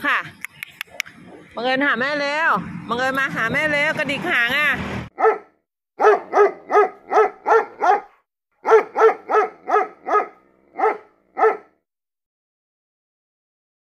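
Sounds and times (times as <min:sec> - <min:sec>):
dog yapping: 0:05.2 - 0:11.7.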